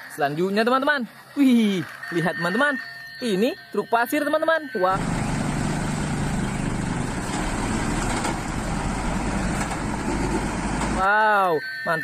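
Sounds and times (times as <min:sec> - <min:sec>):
diesel truck engine rumbling: 0:04.8 - 0:11.1.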